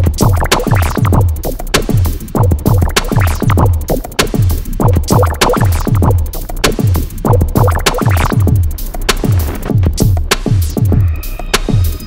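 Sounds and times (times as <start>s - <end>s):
deep bass kicks: 0.0s - 1.5s, 2.4s - 4.1s, 4.8s - 8.7s
electronic music: 0.0s - 12.0s.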